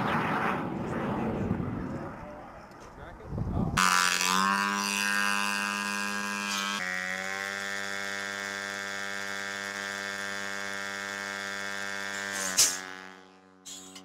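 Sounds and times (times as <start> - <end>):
small piston engine buzzing: 3.8 - 14.0.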